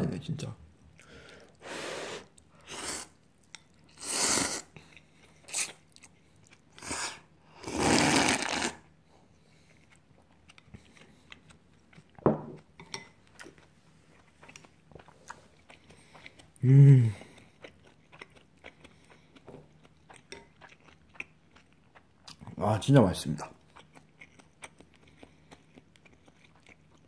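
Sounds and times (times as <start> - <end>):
soft eating sounds: 0.2 - 27.0
noodles being slurped: 6.8 - 8.8.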